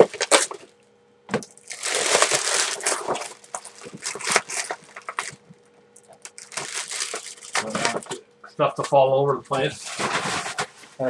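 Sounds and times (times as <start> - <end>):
plastic packaging crinkling: 0.0 - 0.7, 1.4 - 8.2
scattered crackles: 1.5 - 8.1.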